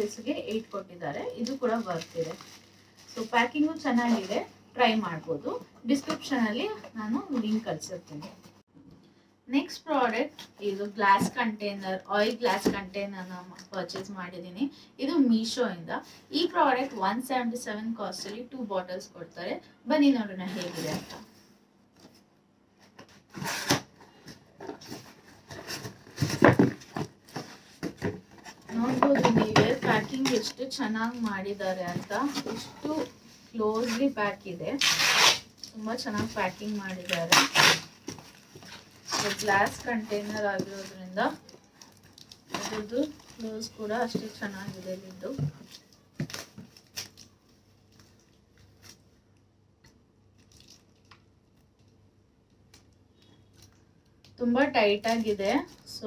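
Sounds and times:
packaging rustling: 0:01.3 - 0:04.4, 0:23.0 - 0:49.2.

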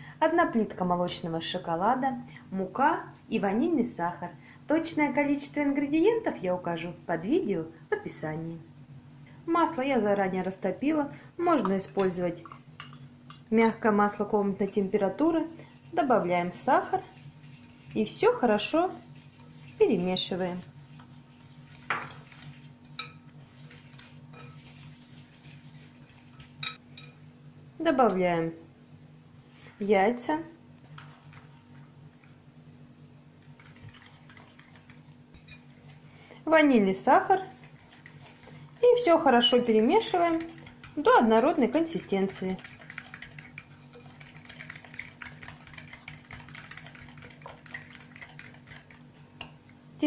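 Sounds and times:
steady low hum: 0:00.0 - 0:50.0
fork clicking and scraping bowl: 0:19.1 - 0:27.2, 0:33.5 - 0:35.9, 0:37.4 - 0:38.8, 0:39.4 - 0:49.6
fork clinking against ceramic bowl: 0:22.9 - 0:23.2, 0:26.3 - 0:27.2.

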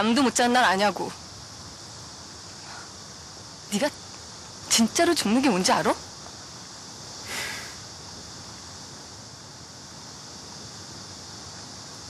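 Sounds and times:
outdoor background hiss: 0:00.0 - 0:12.0
short breathy rush of noise: 0:07.1 - 0:08.0.

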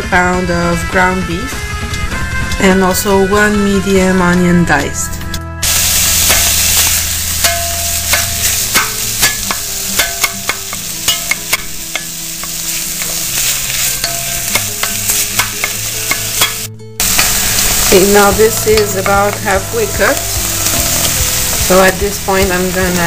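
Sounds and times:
meat and onion sizzling in pot: 0:05.6 - 0:23.0
wooden spoon tapping and scraping: 0:07.4 - 0:17.4.

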